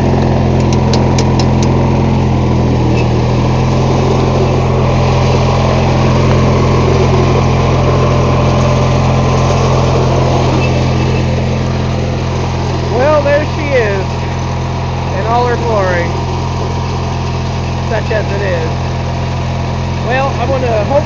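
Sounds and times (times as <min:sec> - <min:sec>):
lawn tractor engine running: 0:00.0 - 0:21.0
sharp clicks: 0:00.6 - 0:01.8.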